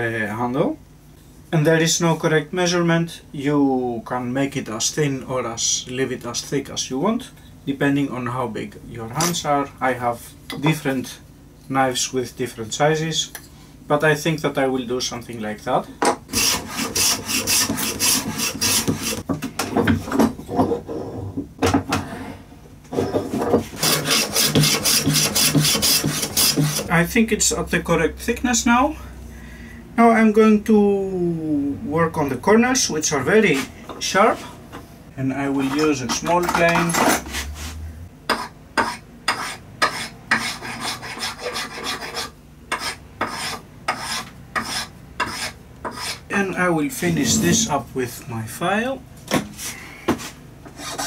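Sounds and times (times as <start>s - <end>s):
hand plane shaving wood: 16.4s - 19.2s, 23.7s - 26.9s, 39.4s - 46.1s.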